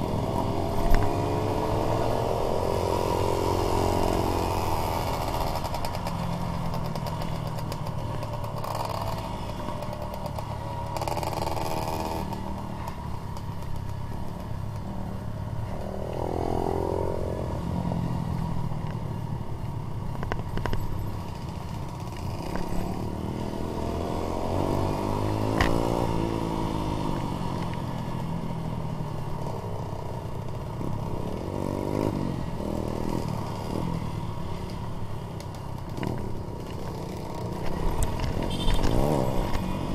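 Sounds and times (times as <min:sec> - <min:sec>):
motorcycle engine revving: 0:00.0 - 0:12.9, 0:21.4 - 0:28.2, 0:35.6 - 0:39.9
motorcycle rattling: 0:00.0 - 0:17.0, 0:18.6 - 0:39.9.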